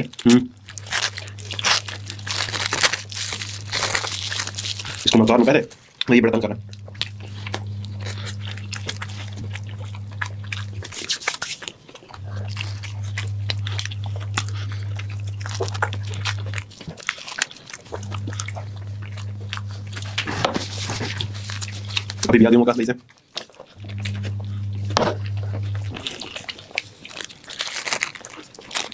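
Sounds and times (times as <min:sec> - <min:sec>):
people chewing and biting food: 0:00.0 - 0:28.9
low hum: 0:00.1 - 0:05.4, 0:06.0 - 0:11.1, 0:12.1 - 0:16.9, 0:17.8 - 0:22.5, 0:23.8 - 0:26.4.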